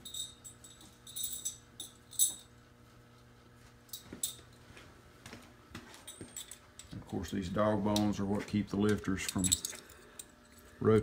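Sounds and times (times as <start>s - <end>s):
metal parts clinking together: 0.0s - 2.5s, 6.1s - 7.4s, 9.2s - 10.8s.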